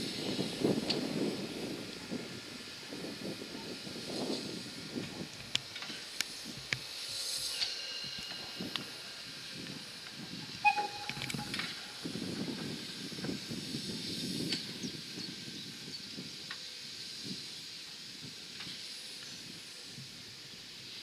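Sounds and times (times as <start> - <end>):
locomotive low rumble: 0.0 - 15.0
steam hissing: 0.0 - 21.0.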